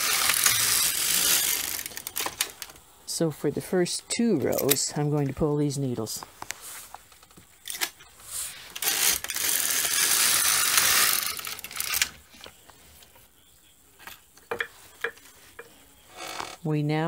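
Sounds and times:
knitting machine carriage rattling: 0.0 - 2.7, 8.7 - 12.2.

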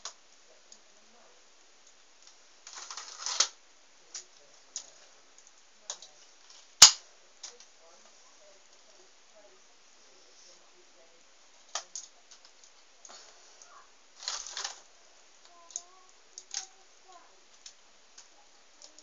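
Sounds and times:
sharp loud plastic snap: 6.8 - 7.0
plastic toy pieces clicking: 15.7 - 16.7.

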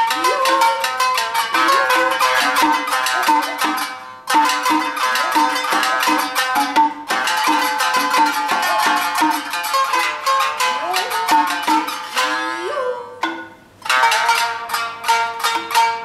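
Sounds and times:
shamisen playing: 0.0 - 16.0.

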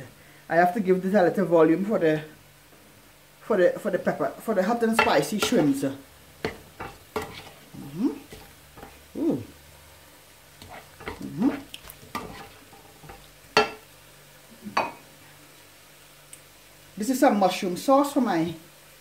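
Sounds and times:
shrimp frying sizzle: 0.0 - 19.0
spoon scraping pan: 4.9 - 9.2, 10.5 - 13.9.

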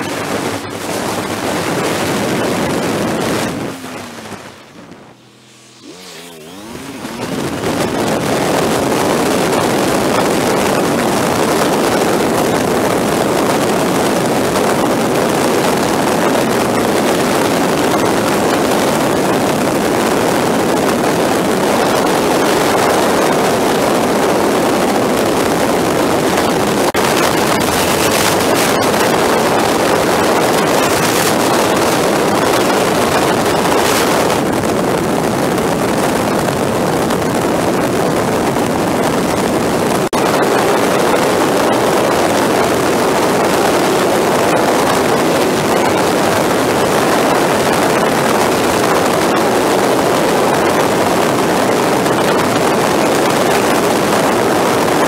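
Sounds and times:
motorcycle engine drone: 0.0 - 55.0
wind rushing over microphone: 0.0 - 55.0.

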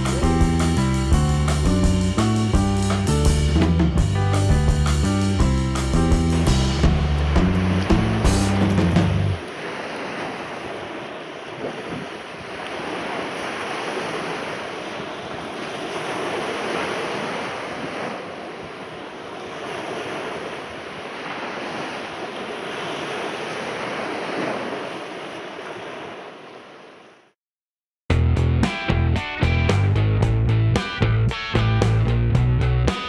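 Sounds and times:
waves washing in: 0.0 - 27.4
wind: 0.0 - 27.4.

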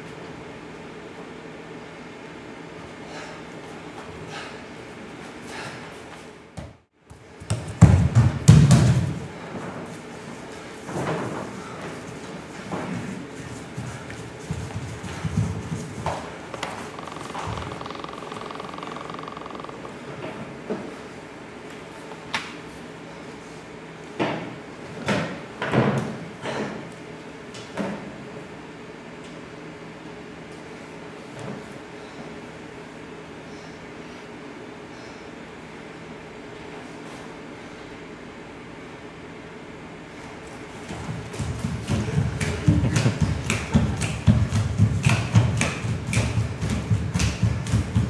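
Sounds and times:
low room hum: 0.0 - 48.0
dancers' feet thumping on stage: 6.6 - 9.3, 13.9 - 19.9, 40.8 - 48.0.

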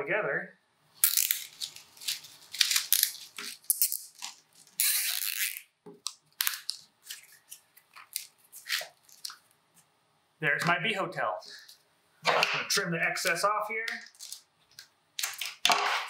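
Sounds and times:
zip tie ratcheting: 1.0 - 5.7.

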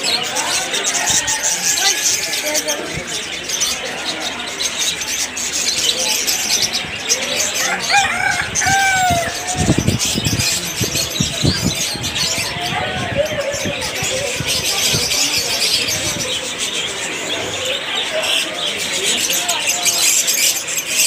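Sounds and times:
small birds chirping: 0.0 - 21.0
rooster crowing: 7.6 - 9.7.

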